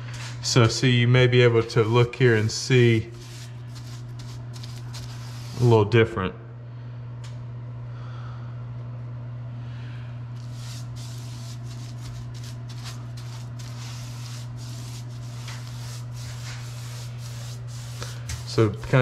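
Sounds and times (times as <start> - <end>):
paintbrush swishing on wall: 1.6 - 5.7, 10.4 - 19.0.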